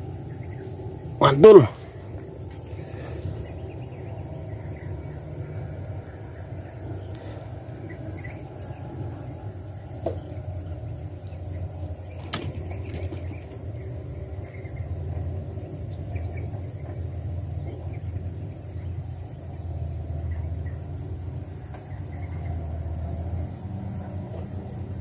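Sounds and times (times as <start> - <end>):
insects trilling: 0.0 - 25.0
low steady rumble: 0.0 - 25.0.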